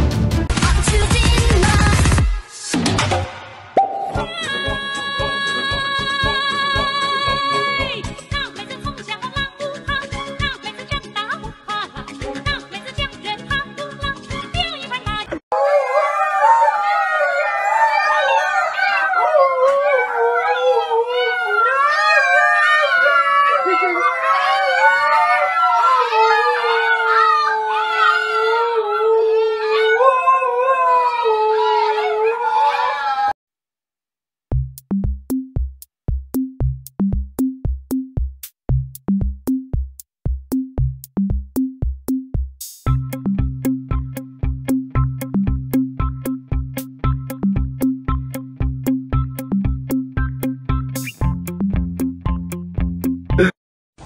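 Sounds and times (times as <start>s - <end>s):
adult dog howling: 15.5s - 33.4s
puppies howling: 15.5s - 33.4s
electronic drum-machine beat: 34.5s - 52.4s.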